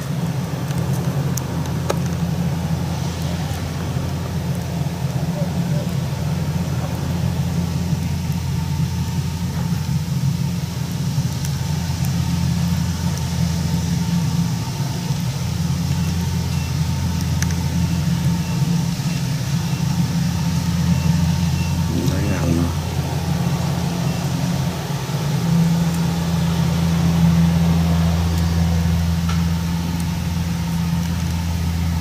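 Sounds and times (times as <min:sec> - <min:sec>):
diesel engine droning: 0:17.8 - 0:32.0.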